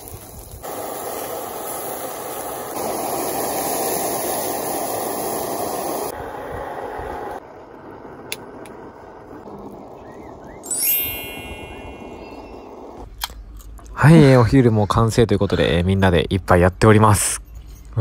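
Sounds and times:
chicken sizzling in oil: 0.0s - 7.4s
outdoor background noise: 0.0s - 18.0s.

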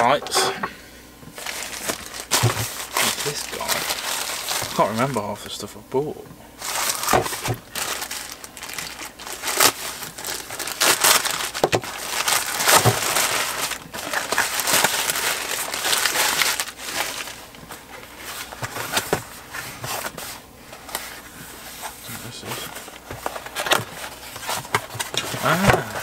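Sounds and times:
plastic packaging crinkling: 1.4s - 5.4s, 6.6s - 26.0s.

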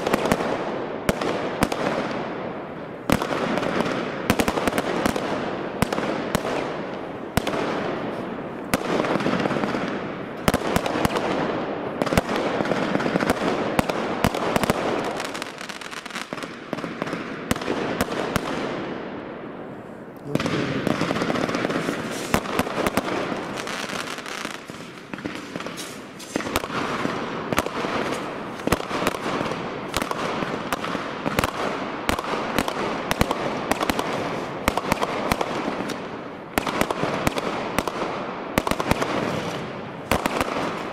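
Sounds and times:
fireworks bursting and crackling: 0.0s - 40.9s.

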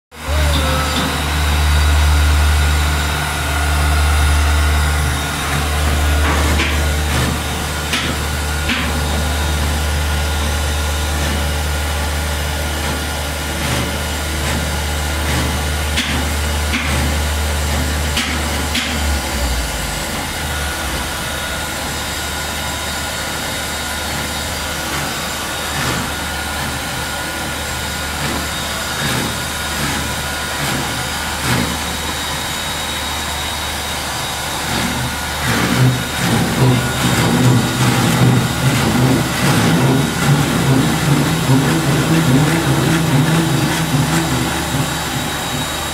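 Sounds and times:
machine drone: 0.1s - 45.9s
low hum: 0.2s - 12.2s.

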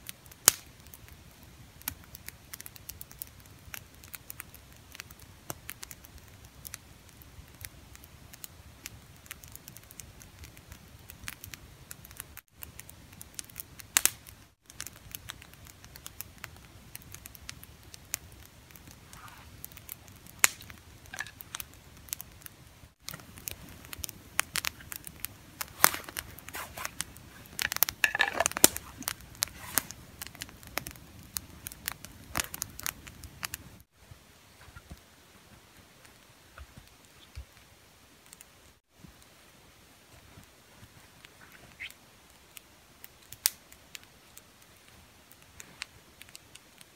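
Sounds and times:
clothing rustling: 25.7s - 29.9s.

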